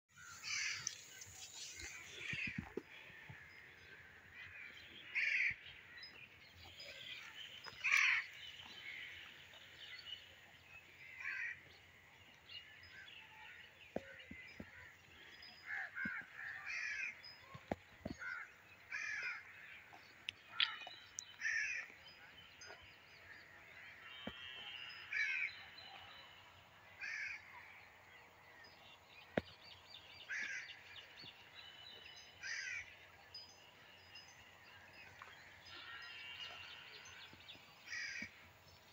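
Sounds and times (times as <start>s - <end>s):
crows cawing: 0.2s - 1.0s, 4.4s - 5.6s, 7.8s - 8.4s, 11.1s - 11.6s, 15.6s - 17.2s, 18.1s - 19.6s, 21.4s - 21.9s, 24.4s - 25.5s, 27.0s - 27.6s, 30.3s - 30.8s, 32.4s - 32.9s, 37.9s - 38.4s.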